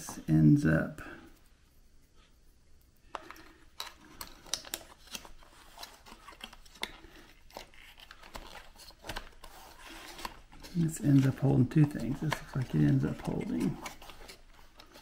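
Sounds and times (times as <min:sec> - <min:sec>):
plastic parts clicking and scraping: 0:03.1 - 0:15.0.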